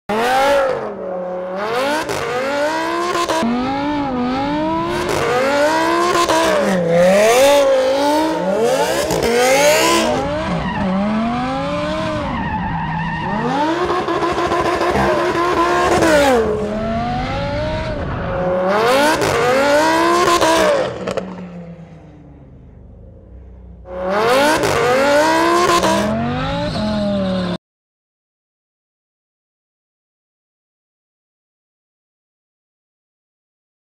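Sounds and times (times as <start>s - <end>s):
sports car engine revving: 0.1s - 12.6s, 13.2s - 27.6s.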